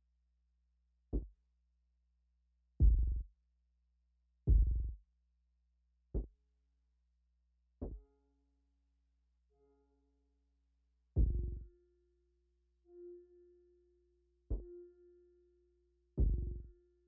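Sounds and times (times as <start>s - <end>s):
faint held synth tone: 12.9s - 17.0s.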